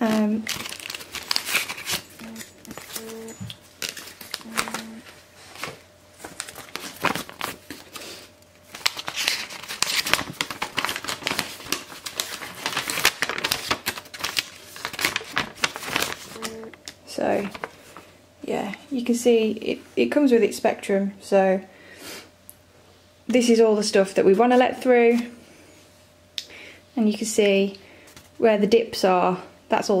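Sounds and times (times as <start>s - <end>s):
paper crinkling and rustling: 0.0s - 18.1s.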